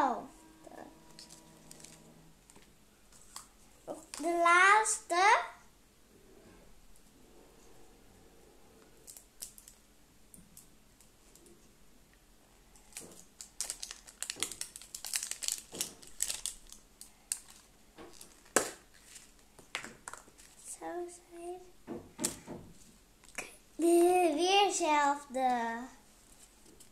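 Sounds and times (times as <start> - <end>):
wrappers crinkling and tearing: 9.1 - 9.8, 12.8 - 20.7.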